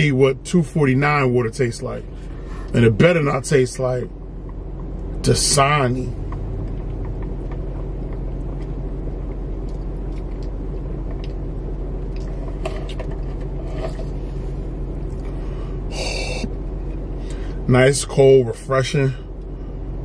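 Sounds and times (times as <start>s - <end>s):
car idling hum: 0.0s - 20.0s
faint clicks and taps: 6.2s - 11.4s.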